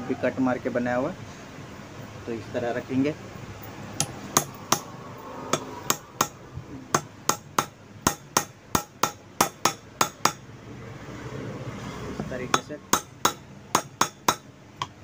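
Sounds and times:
hammer tapping on metal: 4.0 - 4.9, 5.5 - 10.4, 12.2 - 15.0.

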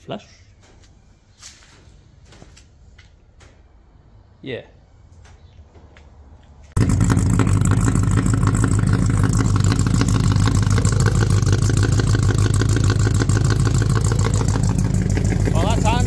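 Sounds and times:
car engine idling: 6.8 - 16.0.

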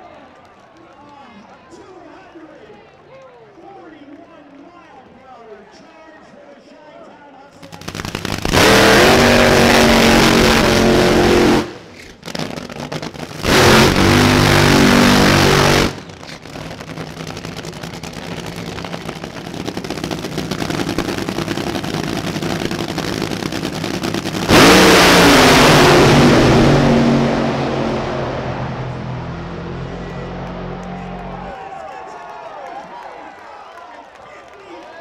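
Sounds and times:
drag racing engines at full throttle: 7.6 - 31.6
loud car launch with rising pitch: 7.6 - 31.6.

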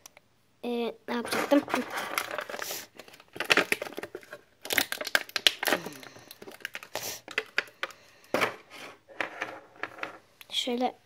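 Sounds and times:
plastic packaging crinkling: 1.2 - 8.0.

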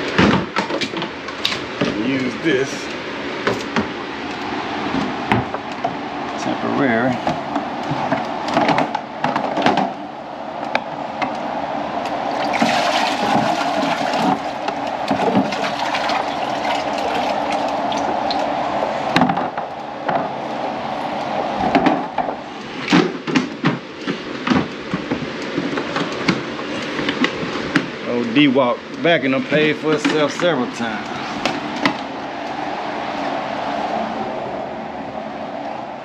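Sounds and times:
water rushing and splashing: 11.7 - 23.2.

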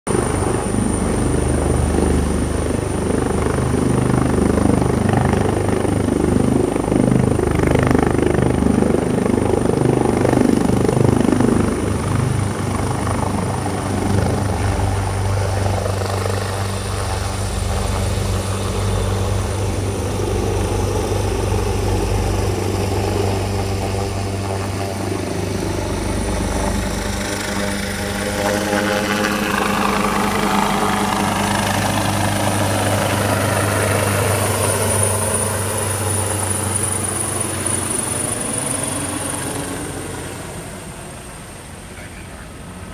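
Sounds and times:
helicopter rotor throb: 0.1 - 42.9
high helicopter whine: 0.1 - 42.9.

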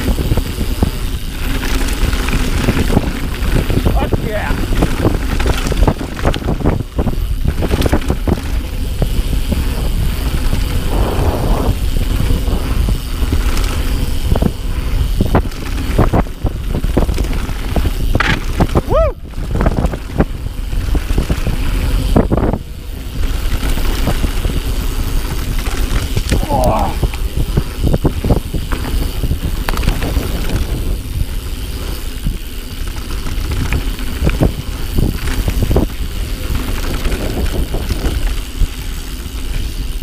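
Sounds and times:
bike rattling over bumps: 0.0 - 40.0
bike tyres rumbling on dirt: 0.0 - 40.0.

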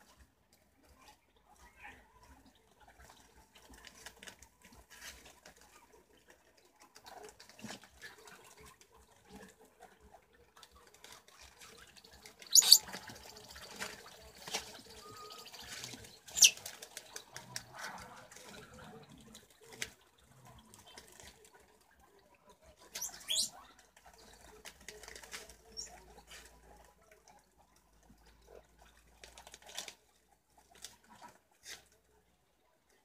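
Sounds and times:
sharp high chirps: 12.5 - 12.8.

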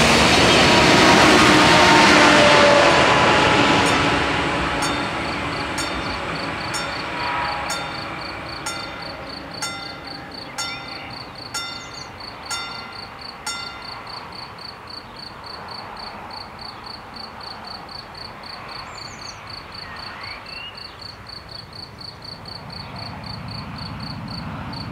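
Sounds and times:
railcar rumble: 0.0 - 20.4
level-crossing bell striking: 3.0 - 14.6
cricket chirping: 3.4 - 24.9
bird calls: 4.8 - 14.0.

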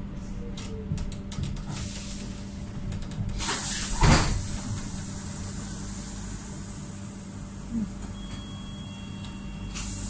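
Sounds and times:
tram doors hissing and thumping shut: 1.6 - 7.5, 9.7 - 10.0.

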